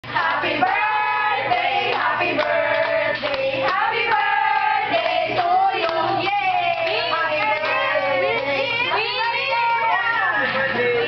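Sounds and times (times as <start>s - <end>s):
group singing in unison: 0.0s - 8.4s.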